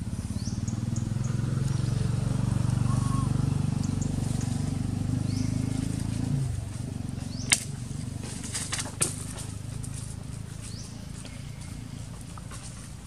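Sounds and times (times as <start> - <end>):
sharp clicks and crackles: 7.5 - 10.1.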